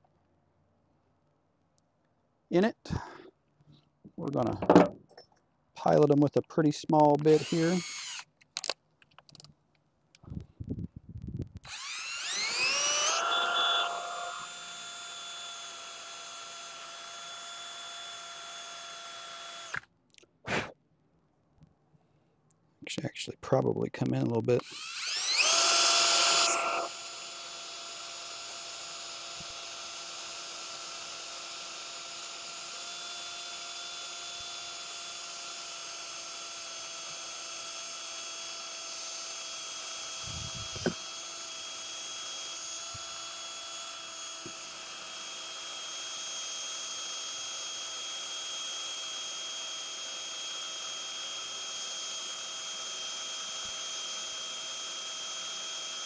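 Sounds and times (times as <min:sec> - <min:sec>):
power drill whining: 0:07.2 - 0:08.8, 0:11.6 - 0:19.9, 0:24.6 - 0:56.0.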